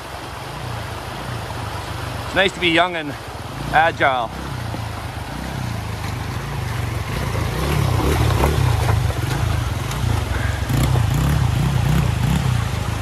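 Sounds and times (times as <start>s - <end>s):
water rushing and splashing: 0.0s - 13.0s
dirt bike engine low revs: 3.1s - 13.0s.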